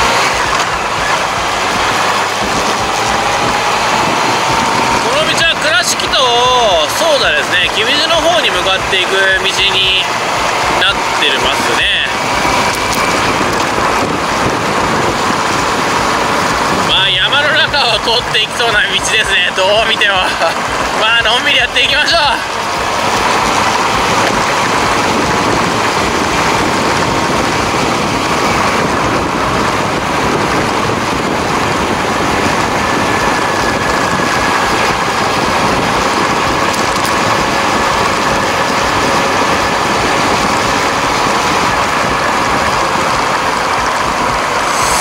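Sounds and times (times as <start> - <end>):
motorcycle engine cruising: 0.0 - 45.0
wind rush on microphone: 0.0 - 45.0.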